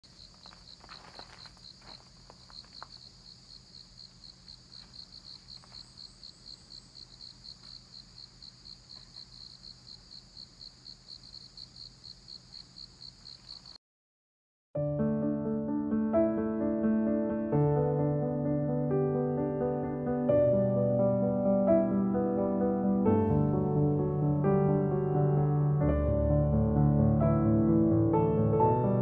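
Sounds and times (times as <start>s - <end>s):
insect chirping: 0.0s - 13.8s.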